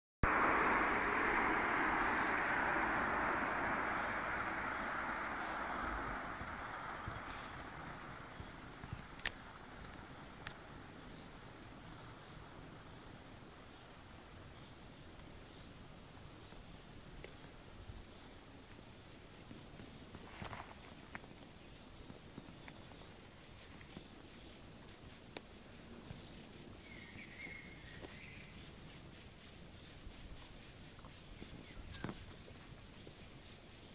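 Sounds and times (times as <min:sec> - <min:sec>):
broad rushing noise: 0:00.2 - 0:10.0
cricket chirping: 0:00.2 - 0:33.9.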